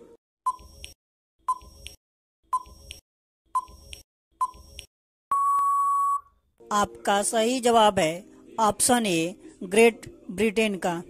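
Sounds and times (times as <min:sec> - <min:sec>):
countdown timer short beeps: 0:05.3 - 0:06.3
long steady beep: 0:05.3 - 0:06.3.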